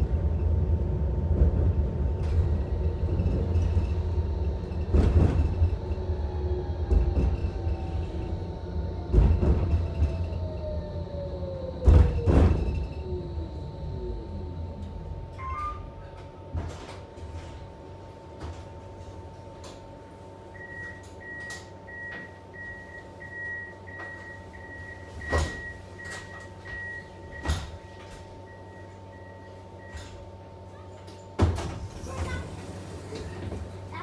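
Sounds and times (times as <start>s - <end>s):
tram electrical hum: 0.0s - 34.0s
door warning signal beeping: 20.6s - 30.1s
doors shutting with a thump: 27.3s - 28.2s.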